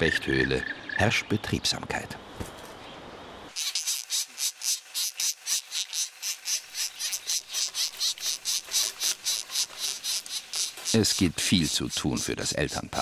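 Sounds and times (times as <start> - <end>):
woodpecker nestlings begging calls: 3.6 - 13.0.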